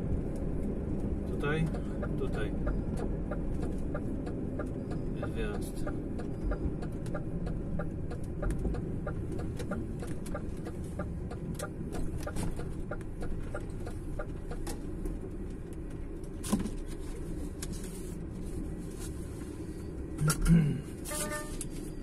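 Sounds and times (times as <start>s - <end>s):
turn signal ticking: 0.0s - 16.4s
diesel engine rumbling: 0.0s - 22.0s.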